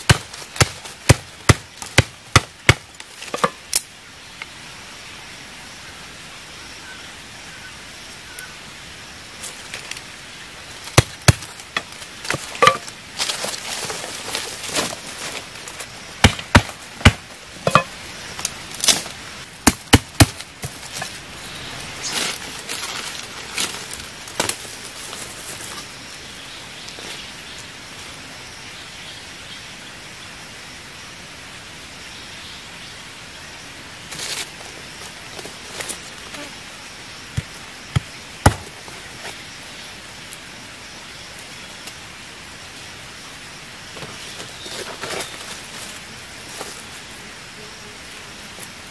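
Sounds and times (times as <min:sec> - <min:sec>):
scuffling in dry leaves: 0:00.0 - 0:02.1, 0:09.4 - 0:28.2, 0:34.0 - 0:36.6, 0:44.0 - 0:47.3
blade chopping wooden sticks: 0:00.0 - 0:03.6, 0:19.6 - 0:21.1
background hiss: 0:00.0 - 0:48.9.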